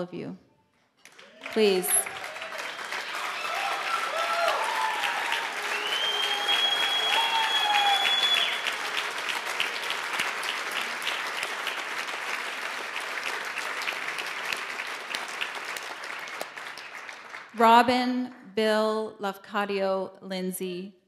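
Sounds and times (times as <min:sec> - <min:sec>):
audience applauding: 0:01.0 - 0:17.7
high steady whistle: 0:04.6 - 0:08.8.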